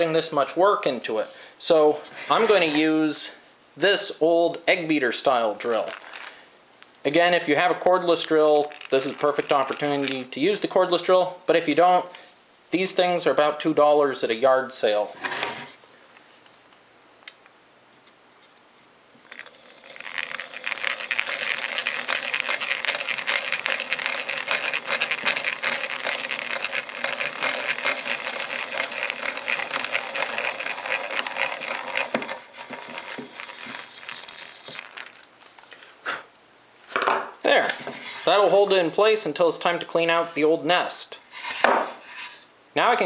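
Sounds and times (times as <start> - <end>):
hand drill whirring clatter: 8.2 - 10.2, 19.2 - 35.3.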